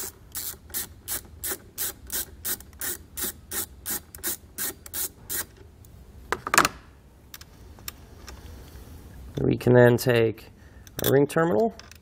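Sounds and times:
ratchet wrench clicking: 0.0 - 5.5.

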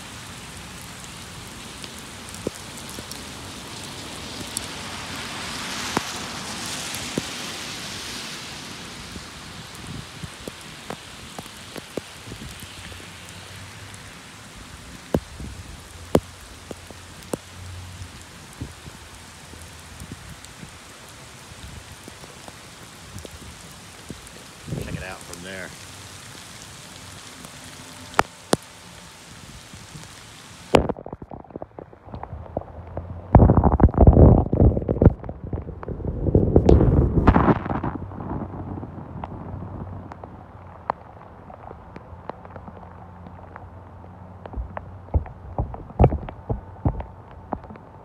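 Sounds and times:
heavy rain falling: 0.0 - 48.0
sharp taps: 44.5 - 47.8.

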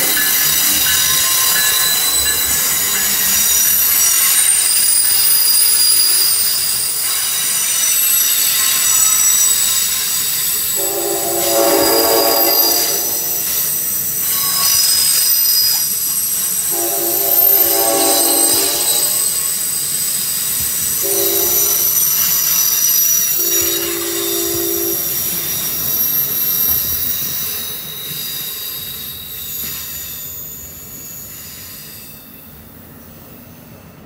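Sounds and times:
passenger train rolling past: 0.0 - 34.0
train wheels squealing: 0.0 - 34.0
train horn chord: 10.8 - 13.5, 16.7 - 19.4, 21.0 - 21.9, 23.6 - 25.0.

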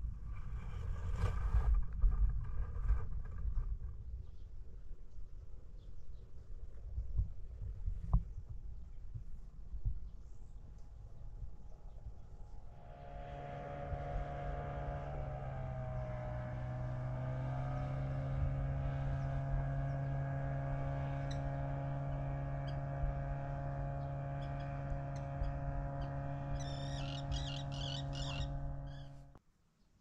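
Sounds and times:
motor engine humming: 11.5 - 29.4.

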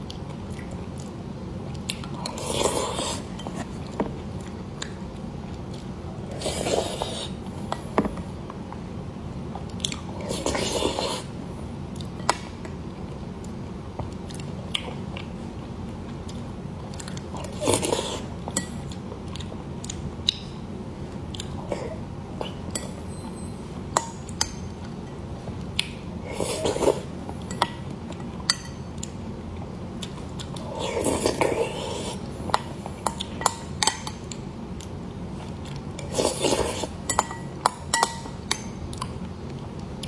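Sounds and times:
chewing and mouth sounds: 0.0 - 7.3, 13.1 - 20.5, 21.3 - 22.6.

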